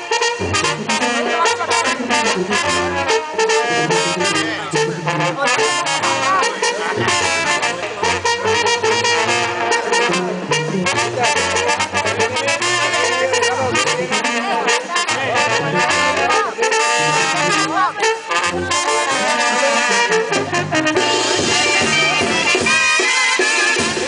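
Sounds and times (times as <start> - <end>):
bass line: 0.0 - 24.0
trumpets and trombones: 0.0 - 24.0
drum and cymbal hits: 20.3 - 24.0.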